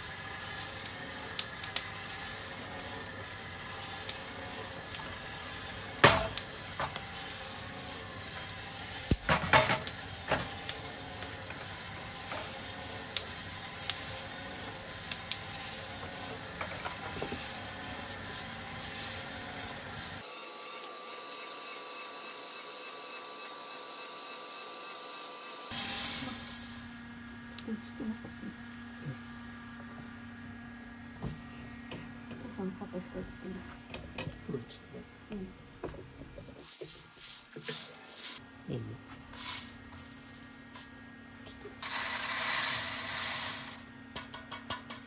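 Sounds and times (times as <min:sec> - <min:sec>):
coffee beans clattering in drum: 0:00.1 - 0:20.2, 0:36.5 - 0:38.4, 0:39.4 - 0:40.9, 0:41.8 - 0:45.0
steady hum with faint tone: 0:26.3 - 0:41.8.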